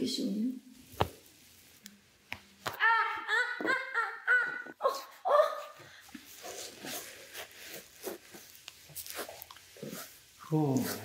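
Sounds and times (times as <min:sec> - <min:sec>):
woman crying out high-pitched: 0:02.8 - 0:05.8.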